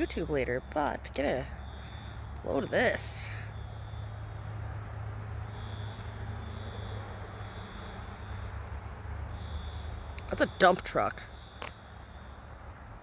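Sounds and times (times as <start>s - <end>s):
insect high trill: 0.0s - 12.5s
insect pulsing buzz: 3.5s - 10.6s.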